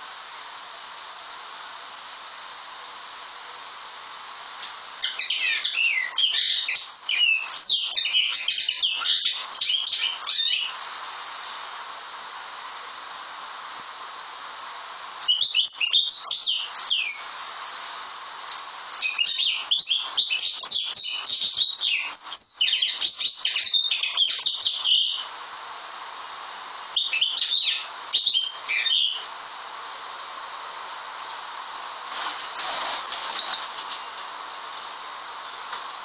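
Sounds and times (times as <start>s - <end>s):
background hiss: 0.0s - 36.0s
bird twittering song: 5.0s - 10.8s, 15.2s - 17.4s, 19.0s - 25.3s, 27.0s - 29.3s.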